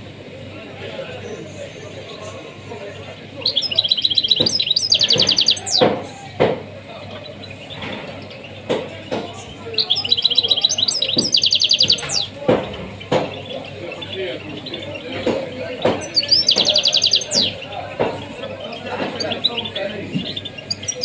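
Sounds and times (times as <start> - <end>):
songbird trilling song: 3.4 - 5.9, 7.0 - 21.0
sharp knocks: 4.4 - 6.7, 11.1 - 13.4, 15.2 - 16.8.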